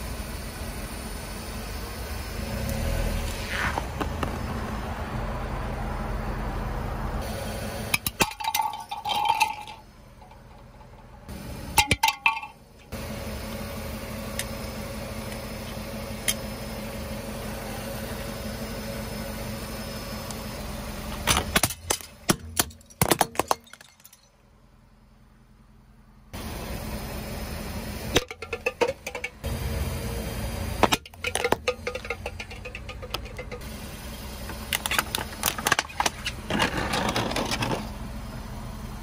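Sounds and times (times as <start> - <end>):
car engine running: 0.0 - 39.0.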